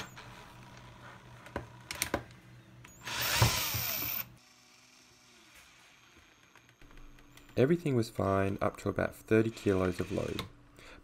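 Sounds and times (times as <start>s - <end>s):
cordless drill running: 3.0s - 6.8s.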